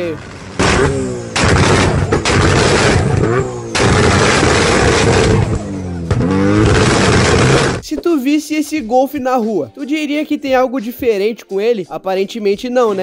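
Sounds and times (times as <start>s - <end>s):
car engine revving: 0.0s - 7.8s
exhaust pops and bangs: 0.0s - 8.0s.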